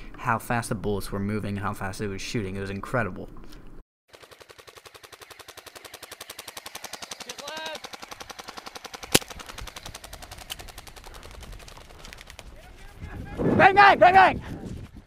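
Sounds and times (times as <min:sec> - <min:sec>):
airsoft machine gun firing: 0:04.1 - 0:12.5
sharp crack: 0:04.3 - 0:12.6.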